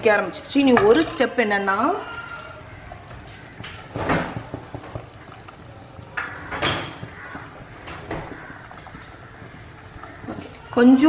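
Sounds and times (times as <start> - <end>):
water boiling and bubbling: 0.0 - 11.0
metal cookware clattering: 0.6 - 1.3, 2.2 - 5.3, 6.0 - 8.5.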